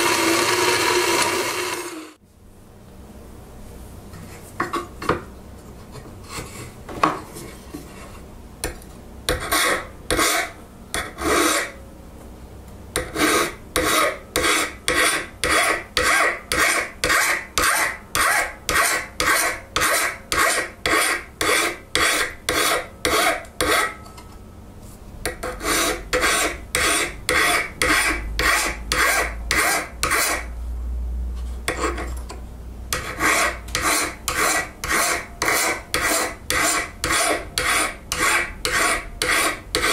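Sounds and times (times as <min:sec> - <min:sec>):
file rasping on iron: 0:09.3 - 0:11.8, 0:13.0 - 0:24.0, 0:25.3 - 0:30.5, 0:31.7 - 0:32.1, 0:32.9 - 0:39.9.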